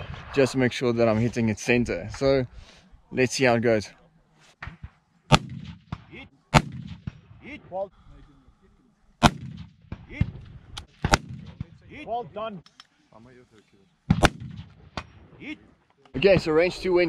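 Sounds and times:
low rumbling echo: 0:00.0 - 0:02.2
faint rifle shots: 0:04.6 - 0:07.3, 0:09.2 - 0:11.8, 0:14.1 - 0:15.2
loud rifle shots: 0:05.3 - 0:07.3, 0:09.2 - 0:11.8, 0:14.1 - 0:15.2.

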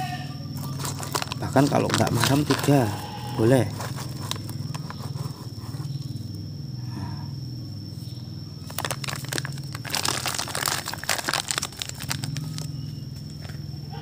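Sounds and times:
foil paper sachet crinkling: 0:00.6 - 0:05.9, 0:08.6 - 0:12.7.

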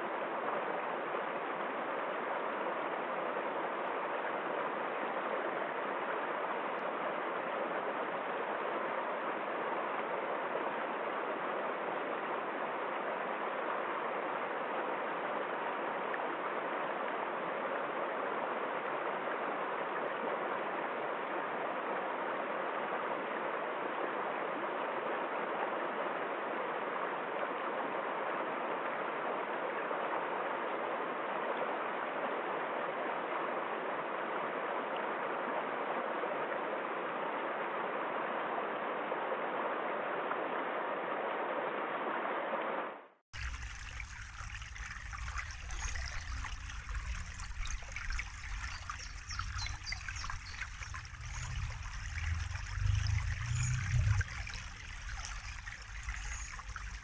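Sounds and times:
stream running over rocks: 0:43.4 - 0:57.0.

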